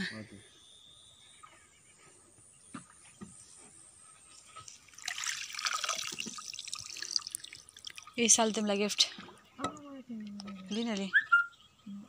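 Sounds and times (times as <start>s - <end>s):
water trickling and dripping: 4.3s - 11.1s.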